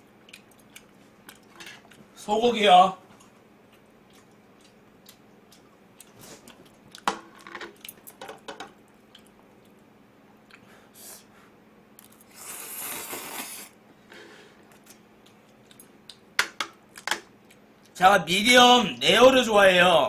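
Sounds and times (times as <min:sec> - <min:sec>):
person slurping noodles: 0:12.3 - 0:13.8.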